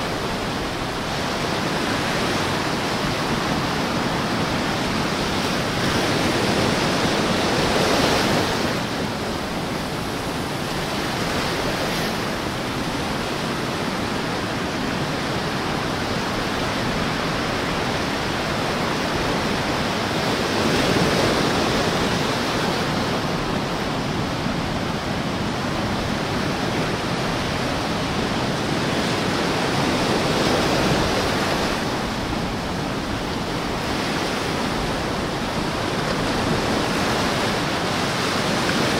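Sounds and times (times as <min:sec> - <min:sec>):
small waves lapping on sand: 0:00.0 - 0:38.9.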